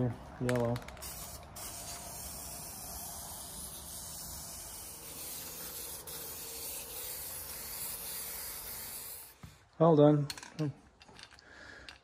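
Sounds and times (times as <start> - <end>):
aerosol spray can hissing: 1.0 - 9.6.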